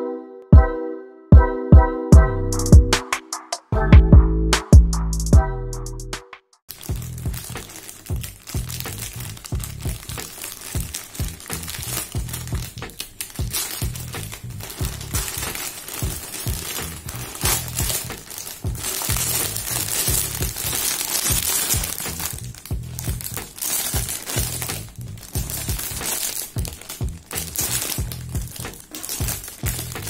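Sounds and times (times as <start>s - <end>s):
background music with beat: 0.5s - 10.2s, 10.8s - 30.0s
plastic packaging crinkling: 6.7s - 30.0s.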